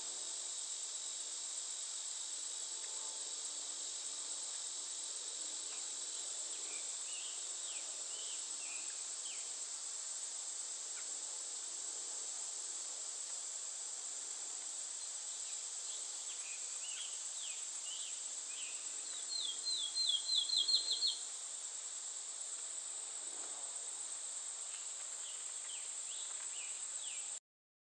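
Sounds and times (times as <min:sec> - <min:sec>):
insect chorus: 0:00.0 - 0:27.4
songbird singing down-slurred notes: 0:16.5 - 0:21.2.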